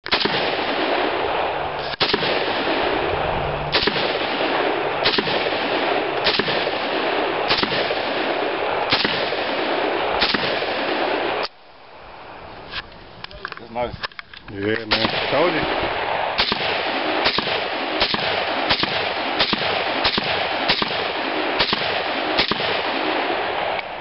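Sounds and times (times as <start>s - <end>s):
rifle shots: 0.0s - 11.5s, 14.8s - 24.0s
loud steady noise: 0.0s - 12.6s.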